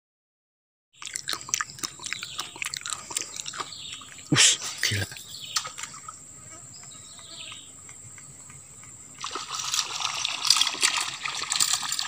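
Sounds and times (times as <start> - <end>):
insects droning: 1.0 - 12.0
splash on water: 9.2 - 12.0.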